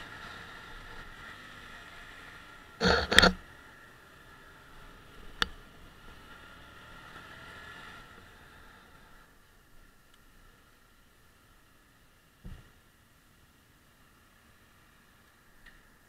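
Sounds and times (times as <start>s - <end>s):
sharp click: 2.8s - 3.4s.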